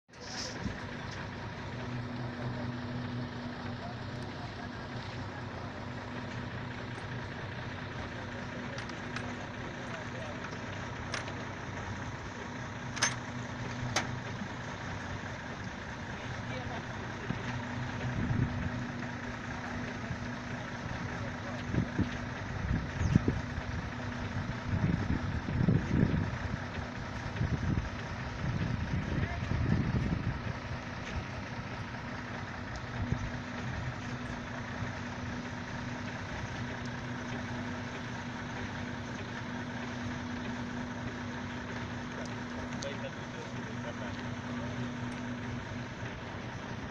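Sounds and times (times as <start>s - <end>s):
belt conveyor humming: 0.1s - 46.9s.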